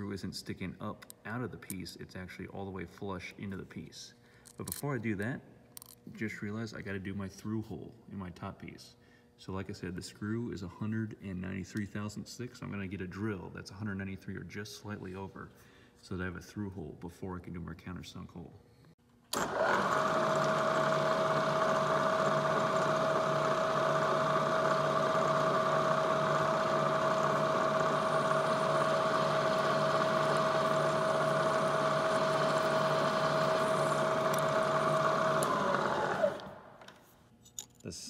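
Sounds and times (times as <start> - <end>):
drill press motor whining: 19.3 - 37.0.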